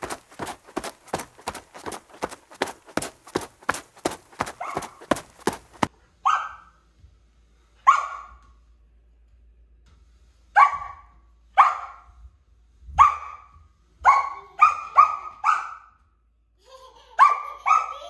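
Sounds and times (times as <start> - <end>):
puppy barking: 4.6 - 5.0, 6.2 - 6.7, 7.9 - 8.3, 10.6 - 11.0, 11.6 - 12.0, 13.0 - 15.9.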